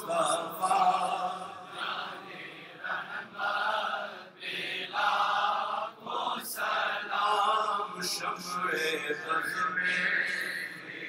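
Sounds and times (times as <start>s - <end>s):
men chanting together: 0.0s - 8.6s.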